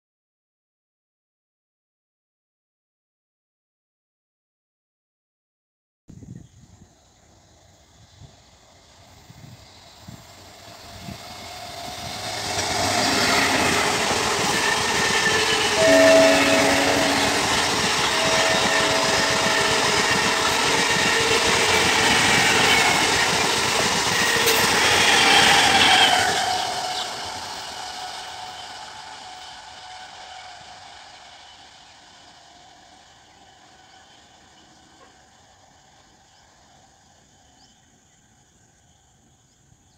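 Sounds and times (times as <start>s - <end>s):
train passing at speed: 6.8s - 39.9s
train horn: 12.5s - 23.4s, 24.2s - 31.9s.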